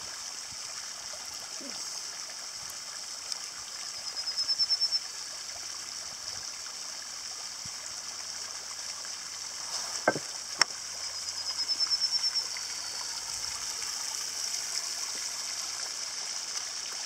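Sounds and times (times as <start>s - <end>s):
model boat motor hiss: 0.0s - 17.0s
water spray: 9.4s - 17.0s.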